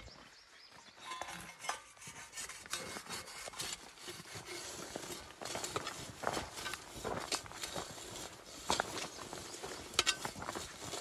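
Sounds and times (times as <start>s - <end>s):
plow scraping through dry soil: 1.1s - 11.0s.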